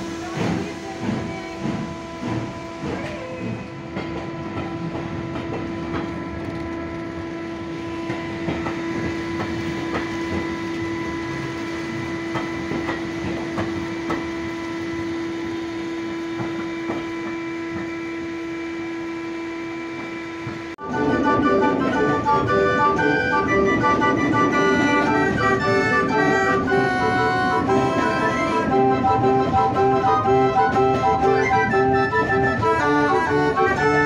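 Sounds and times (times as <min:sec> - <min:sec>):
train wheels clicking over rail joints: 0:00.0 - 0:18.3.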